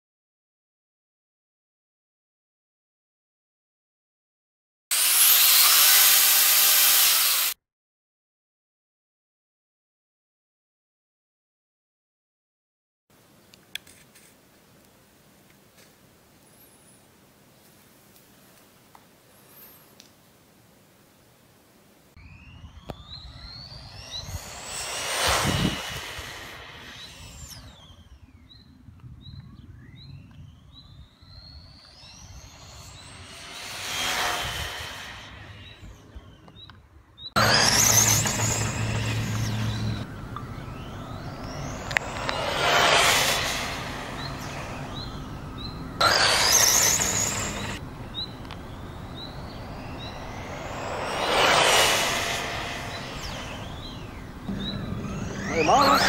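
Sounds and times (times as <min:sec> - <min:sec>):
toy car motor whining: 0:04.9 - 0:07.6, 0:22.8 - 0:28.1, 0:37.4 - 0:56.0
bird chirping: 0:22.2 - 0:25.7, 0:26.8 - 0:33.5, 0:38.2 - 0:42.5, 0:43.8 - 0:51.2, 0:52.7 - 0:56.0.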